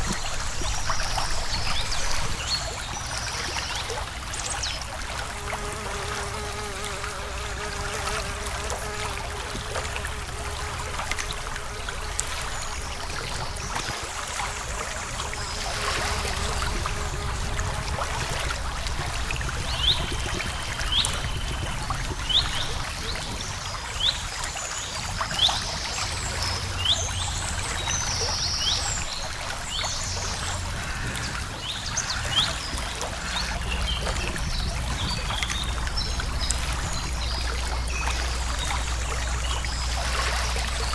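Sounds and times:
creek water trickling: 0.0s - 40.9s.

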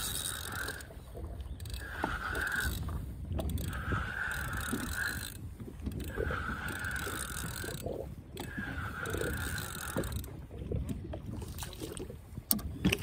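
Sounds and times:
fishing reel whirring: 0.0s - 10.4s.

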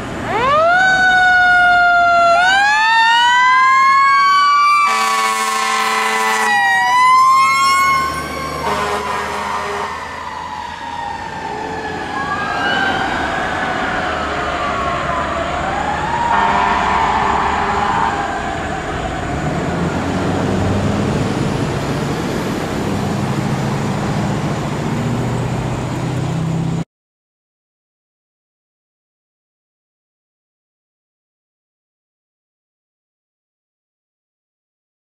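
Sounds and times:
fire engine siren wailing: 0.0s - 26.8s
passing car traffic: 0.0s - 26.8s.

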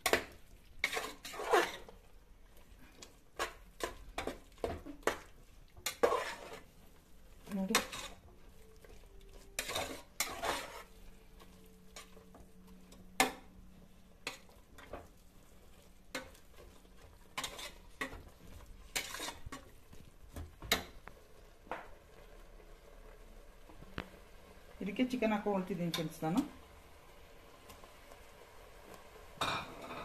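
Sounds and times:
metal ladle scraping a pot: 0.0s - 2.1s, 5.8s - 6.8s, 7.5s - 13.5s, 14.1s - 19.9s
light sizzle: 0.0s - 30.0s.

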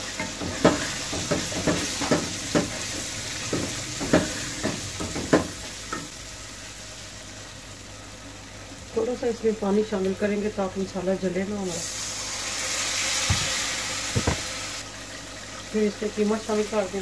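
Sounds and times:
food sizzling in oil: 0.0s - 17.0s.

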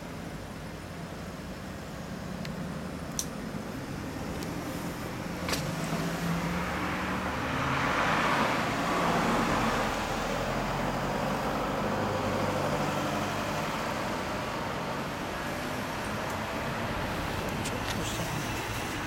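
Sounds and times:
low hum of traffic: 0.0s - 19.0s
motor vehicle passing: 3.9s - 19.0s.

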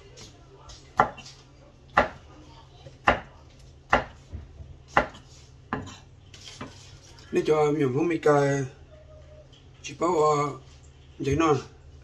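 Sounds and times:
knife slicing tomato: 0.2s - 2.2s, 4.9s - 7.1s.

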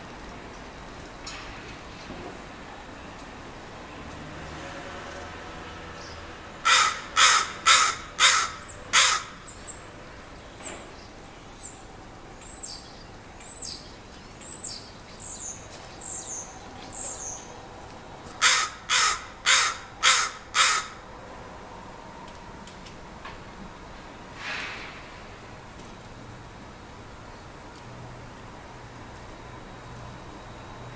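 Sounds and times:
harsh loud bird calls: 6.0s - 11.8s, 18.4s - 21.0s.

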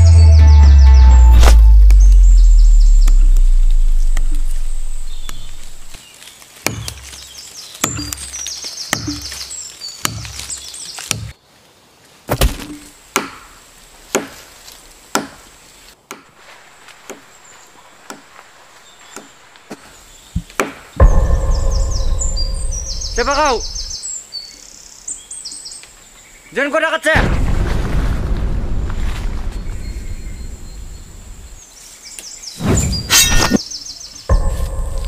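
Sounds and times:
background music: 0.0s - 2.5s, 21.0s - 23.9s, 34.3s - 35.0s
birds chirping: 0.0s - 11.5s, 16.5s - 27.1s, 29.2s - 35.0s
blade chopping into tree trunk: 6.6s - 7.2s, 7.8s - 8.3s, 8.9s - 9.4s, 10.0s - 11.3s, 12.3s - 14.5s.

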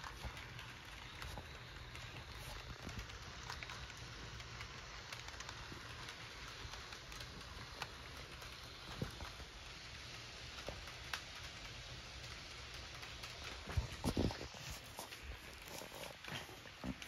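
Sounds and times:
model train rumble: 0.0s - 13.6s
wheels clicking on rails: 0.0s - 17.0s.

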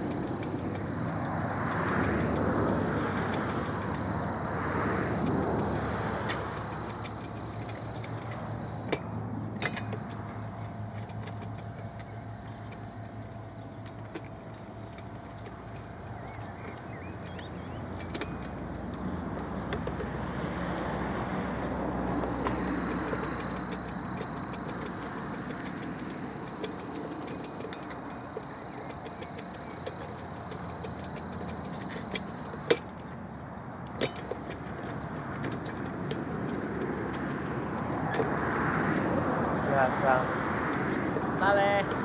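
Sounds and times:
faint high whine: 0.0s - 33.2s
machine crawling over stony soil: 0.0s - 42.0s.

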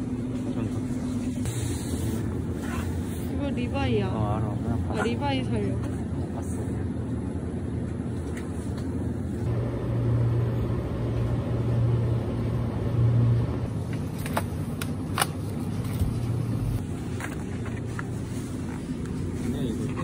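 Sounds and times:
low hum and rumble: 0.0s - 20.0s.

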